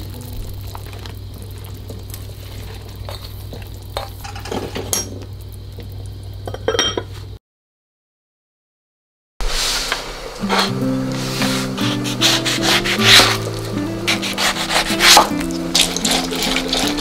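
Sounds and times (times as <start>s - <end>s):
soup simmering in a saucepan: 0.0s - 6.5s, 9.4s - 17.0s
low steady hum: 0.0s - 7.2s
glass lid clinking on pot: 6.5s - 7.1s.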